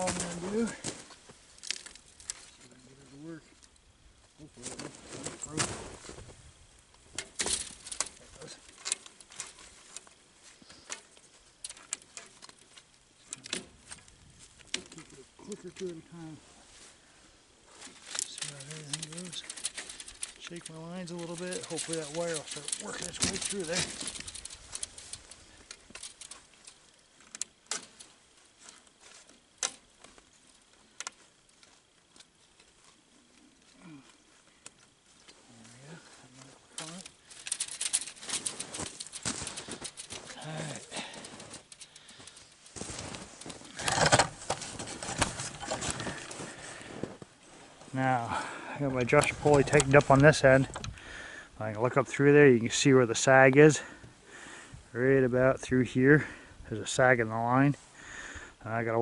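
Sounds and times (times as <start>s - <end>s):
metallic wire clicks and clinks: 7.2s - 10.2s, 10.8s - 16.0s, 17.8s - 30.2s, 34.6s - 46.8s
pulley clicks and scrapes: 17.9s - 28.1s, 36.8s - 40.5s.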